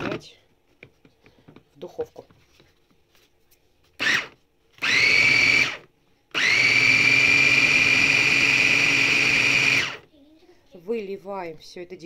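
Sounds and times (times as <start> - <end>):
electric chopper motor whirring: 6.4 - 10.0.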